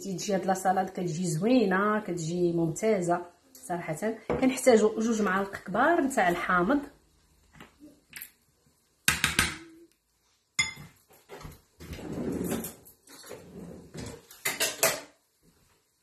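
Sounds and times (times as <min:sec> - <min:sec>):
metal spoon clinking ceramic bowl: 0:10.6 - 0:10.9.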